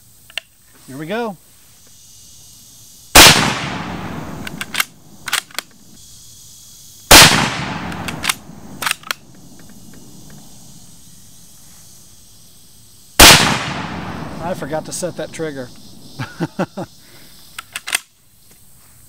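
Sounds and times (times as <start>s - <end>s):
rifle shots: 3.2s - 5.5s, 7.1s - 10.1s, 13.2s - 15.5s
rifle bolt metallic clicks: 3.6s - 5.8s, 7.3s - 9.8s, 17.6s - 18.1s.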